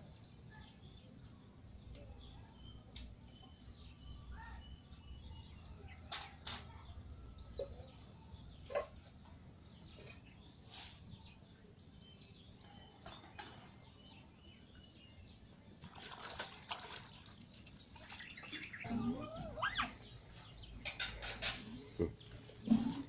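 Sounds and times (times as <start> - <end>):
small birds chirping: 0.0 - 23.0
wavering gliding cry: 18.8 - 20.1.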